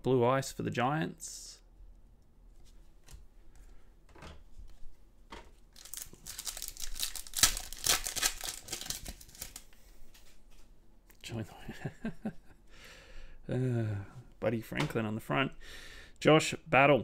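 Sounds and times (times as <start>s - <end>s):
wrapper tearing and crinkling: 5.7s - 9.7s.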